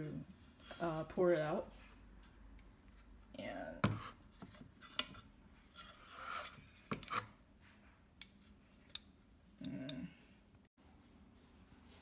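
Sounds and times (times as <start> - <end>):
scraping and rubbing: 5.6 - 7.4.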